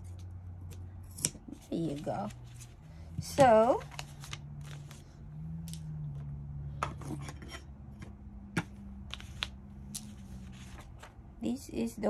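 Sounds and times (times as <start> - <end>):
steady low hum: 0.0 - 12.0
paper and fabric rustling: 1.5 - 5.1, 9.1 - 11.2.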